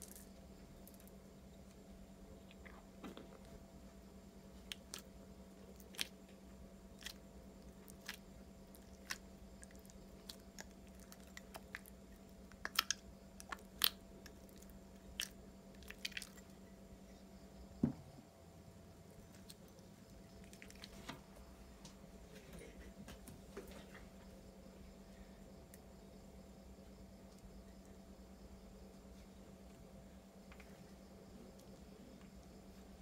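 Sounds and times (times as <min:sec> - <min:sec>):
faint steady hum: 0:00.0 - 0:33.0
slime crackling and popping: 0:12.6 - 0:14.4.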